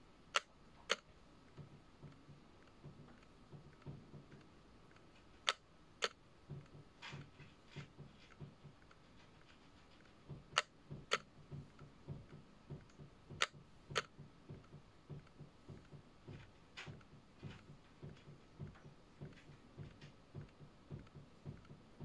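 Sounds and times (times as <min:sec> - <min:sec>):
soft regular tapping: 0:00.0 - 0:22.0
sharp clicks: 0:00.3 - 0:06.7, 0:10.4 - 0:15.9.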